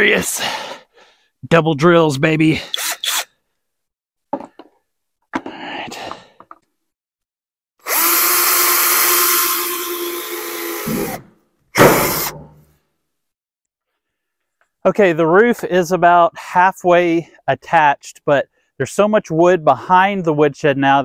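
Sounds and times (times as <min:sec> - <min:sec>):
cordless drill drilling into metal: 0:07.8 - 0:12.4.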